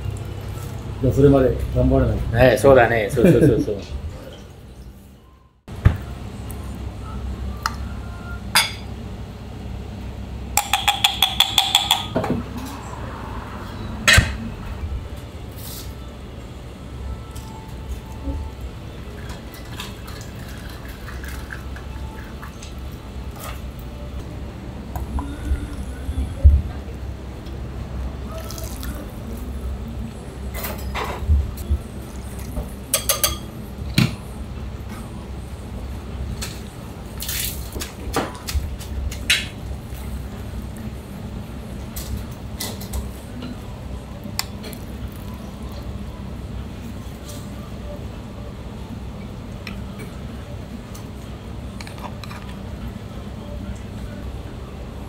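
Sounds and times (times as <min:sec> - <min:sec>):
low kitchen hum: 0:00.0 - 0:55.0
ringing taps: 0:10.6 - 0:12.2
spoon clinking against glass jar: 0:10.6 - 0:12.2.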